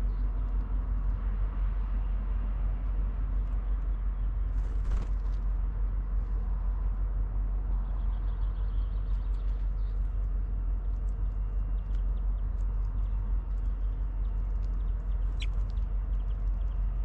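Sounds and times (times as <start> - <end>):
small birds chirping: 0.0 - 0.6, 7.6 - 17.0
low outdoor rumble: 0.0 - 17.0.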